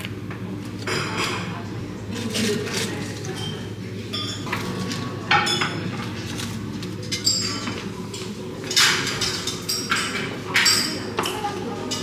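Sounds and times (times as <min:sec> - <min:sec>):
tableware clinking: 0:03.2 - 0:06.0, 0:07.0 - 0:12.0.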